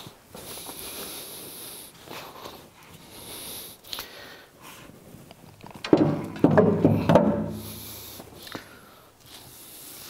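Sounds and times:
faint breaths: 0:00.0 - 0:05.3, 0:07.0 - 0:10.0
loud metal knocks with ringing: 0:05.9 - 0:07.6.

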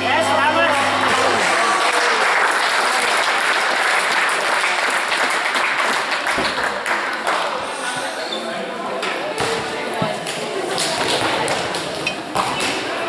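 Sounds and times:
spectators applauding in a hall: 0:00.8 - 0:07.8.

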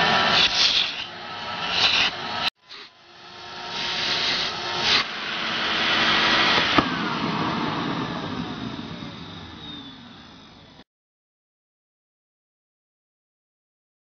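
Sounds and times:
vacuum cleaner motor running: 0:00.0 - 0:10.8.

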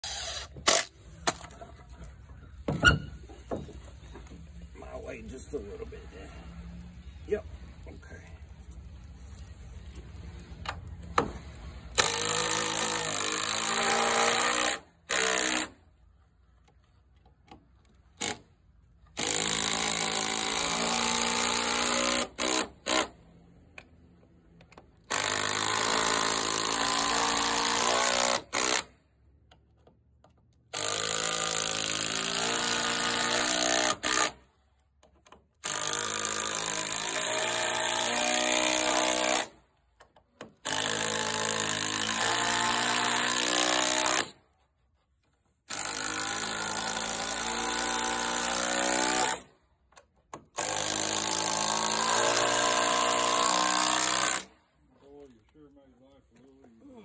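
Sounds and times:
impact driver hammering screws: 0:00.0 - 0:01.6, 0:11.2 - 0:15.8, 0:18.2 - 0:18.5, 0:19.1 - 0:23.2, 0:24.7 - 0:29.0, 0:29.8 - 0:44.4, 0:45.7 - 0:54.6.

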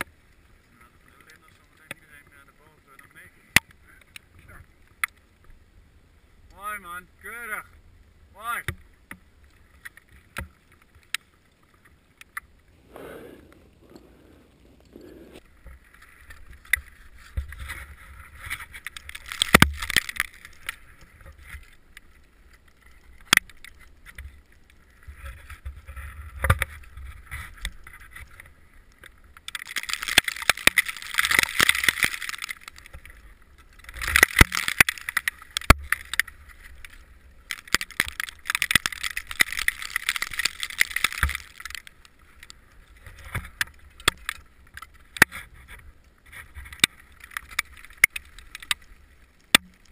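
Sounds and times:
ice axe scraping rock: 0:12.7 - 0:15.4.

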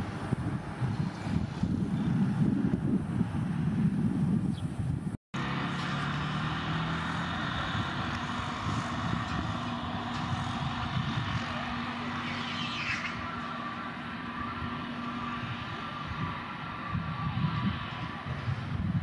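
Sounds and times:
jet engines idling: 0:05.4 - 0:19.0.

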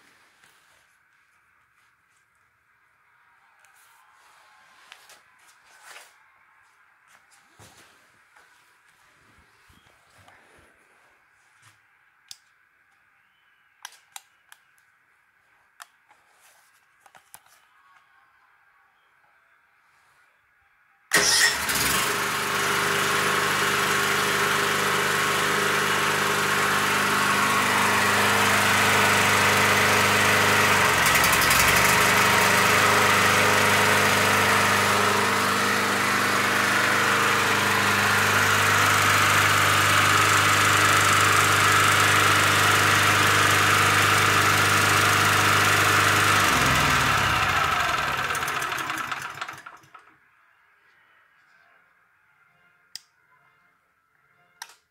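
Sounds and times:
petrol generator running: 0:21.1 - 0:50.2.

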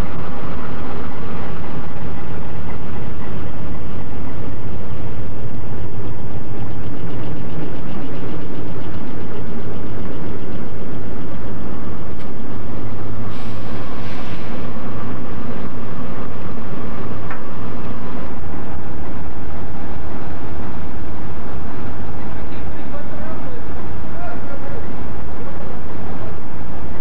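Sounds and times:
locomotive engines idling: 0:00.0 - 0:27.0
brief hiss: 0:13.3 - 0:14.5.

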